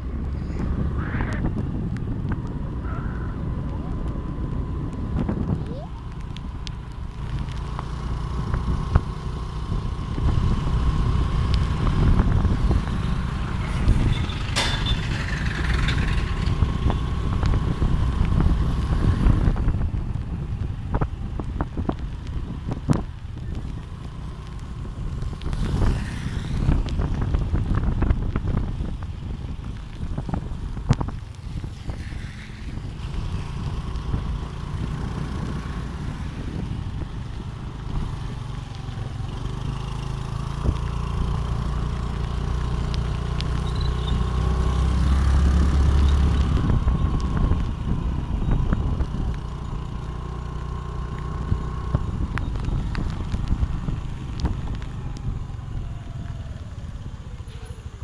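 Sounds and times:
vehicle engine and road noise: 0:00.0 - 0:58.0.

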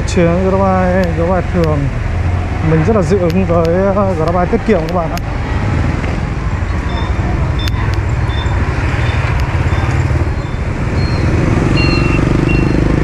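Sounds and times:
road and wind noise: 0:00.0 - 0:13.0
short beeps: 0:06.7 - 0:12.9.

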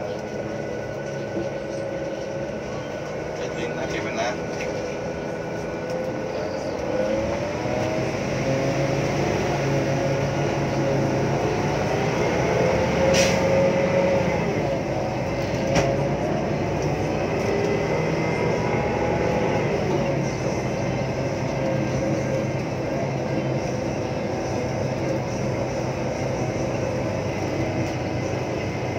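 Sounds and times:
bus diesel engine running: 0:00.0 - 0:28.9.

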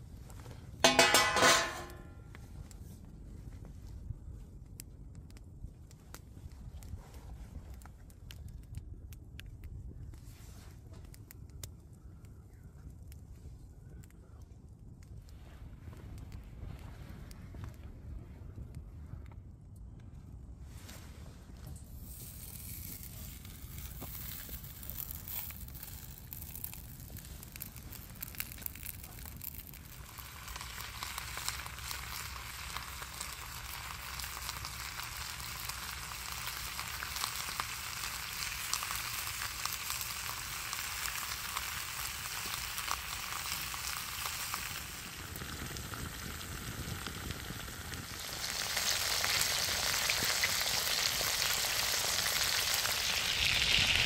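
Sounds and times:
sausages sizzling in fat: 0:00.8 - 0:02.1, 0:21.8 - 0:54.0.

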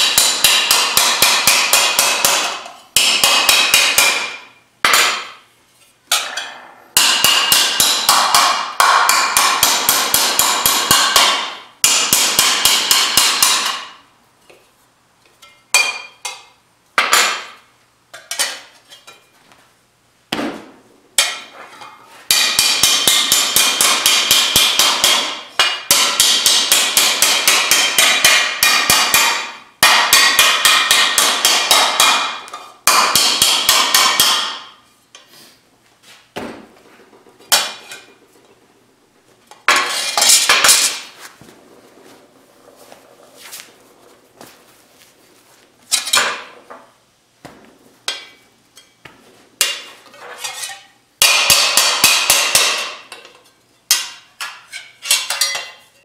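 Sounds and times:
hammer striking steel panel: 0:00.0 - 0:05.4, 0:06.1 - 0:14.0, 0:20.3 - 0:34.8, 0:36.4 - 0:38.2, 0:51.2 - 0:53.2.

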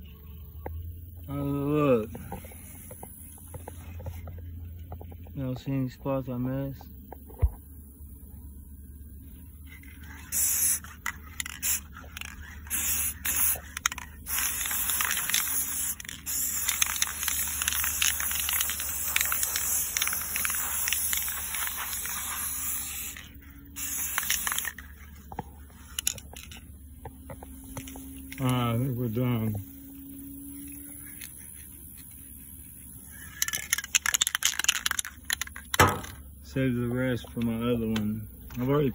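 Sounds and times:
spray paint can hissing: 0:09.9 - 0:26.6, 0:33.0 - 0:36.0.

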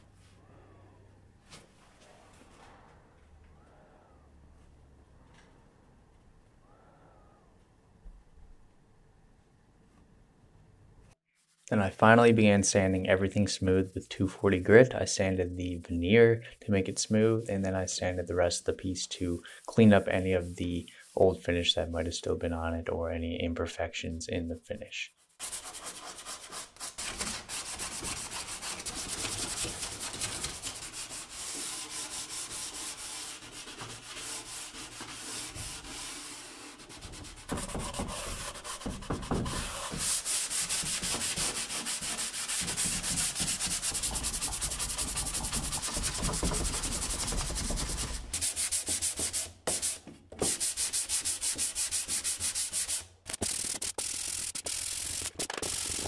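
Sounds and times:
sandpaper rasping on wood: 0:25.1 - 0:56.0.

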